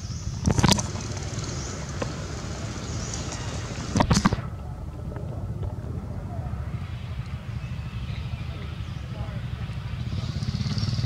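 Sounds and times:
wind buffeting microphone: 0.0 - 11.0
loud crackling bursts: 0.3 - 4.5.

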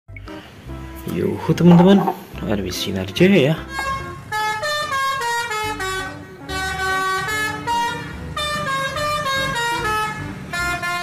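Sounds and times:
musical air horn tune: 3.7 - 11.0.

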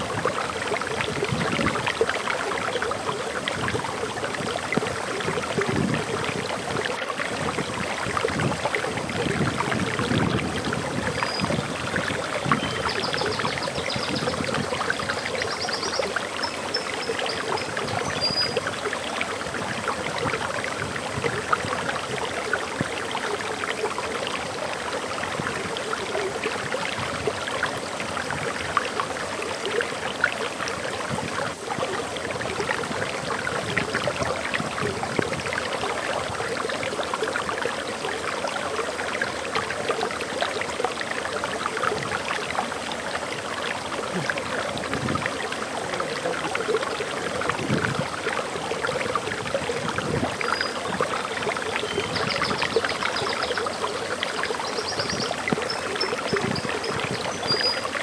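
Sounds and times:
waterfall splashing: 37.4 - 58.0.

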